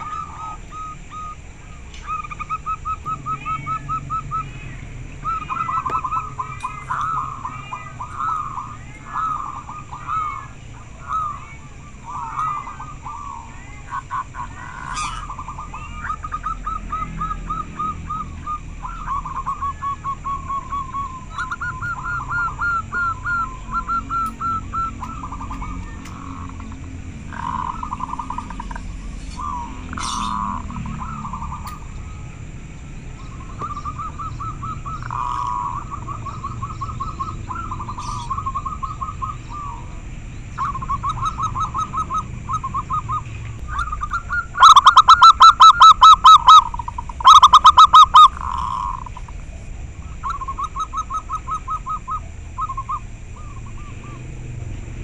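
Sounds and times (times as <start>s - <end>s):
dove cooing: 0.0s - 54.3s.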